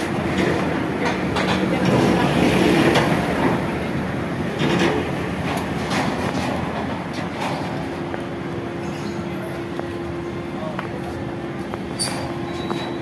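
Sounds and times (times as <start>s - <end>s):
steel bars clanking and scraping: 12.0s - 13.0s.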